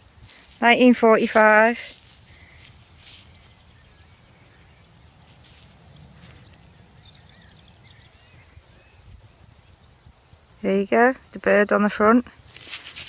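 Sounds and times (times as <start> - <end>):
small birds chirping: 0.0 - 11.6
soft rustles: 0.1 - 3.8, 5.2 - 6.7, 12.4 - 13.0.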